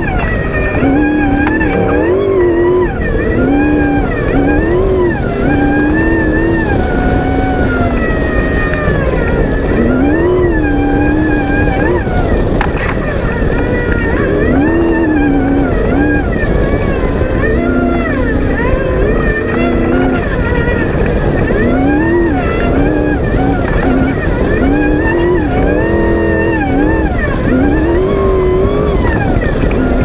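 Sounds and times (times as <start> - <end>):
engine revving: 0.0 - 30.0
wind rush: 0.0 - 30.0.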